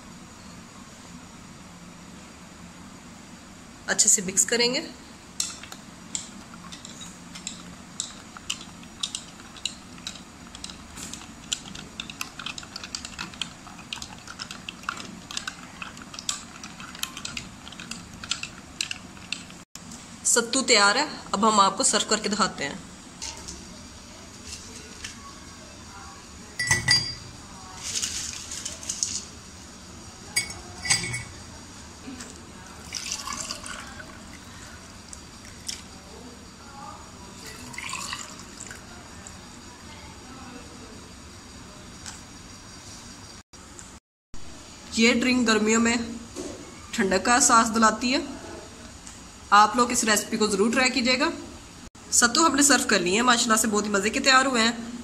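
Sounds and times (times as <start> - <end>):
spoon and ice clinking on glass: 26.6 - 27.3, 30.3 - 31.4
drink pouring over ice: 32.8 - 34.4, 37.4 - 38.9.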